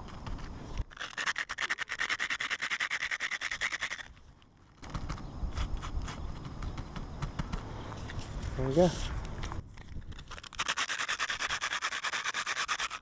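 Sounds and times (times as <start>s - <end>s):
faint irregular scratches: 0.0s - 13.0s
shingles scraping together: 10.0s - 13.0s.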